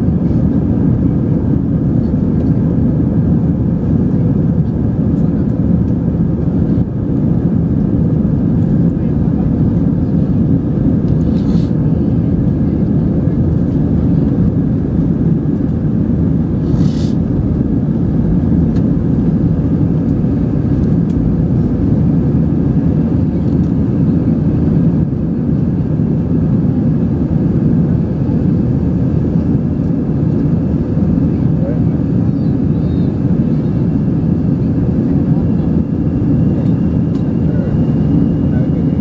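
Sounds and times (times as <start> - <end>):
airliner engine rumble: 0.0 - 39.0.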